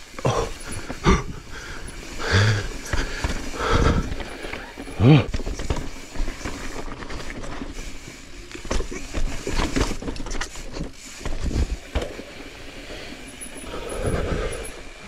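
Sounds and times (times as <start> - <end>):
bike knocking and rattling: 0.0 - 15.0.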